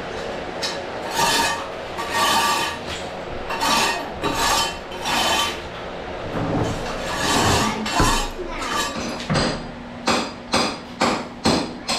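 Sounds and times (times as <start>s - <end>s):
rasping scraping strokes: 1.0s - 5.7s, 6.6s - 9.2s.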